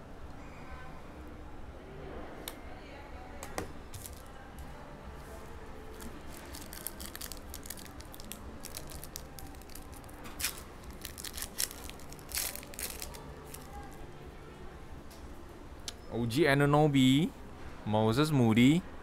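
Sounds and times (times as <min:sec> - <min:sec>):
foil wrapper crinkling: 0:05.9 - 0:14.0.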